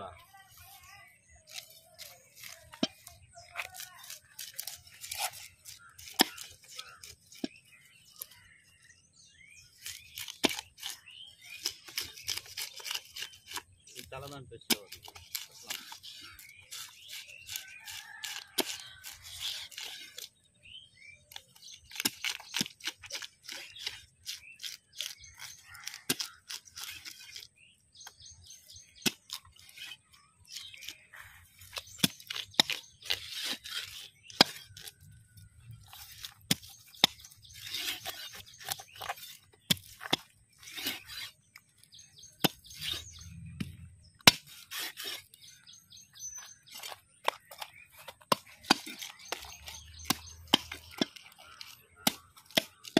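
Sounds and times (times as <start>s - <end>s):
knife scraping fish: 0.6s - 8.6s, 9.7s - 14.0s, 14.9s - 20.4s, 21.3s - 52.9s
knife chopping fish on wood: 9.8s - 11.0s, 14.7s - 20.3s, 21.3s - 27.5s, 31.7s - 35.0s, 42.4s - 45.3s, 46.7s - 52.9s.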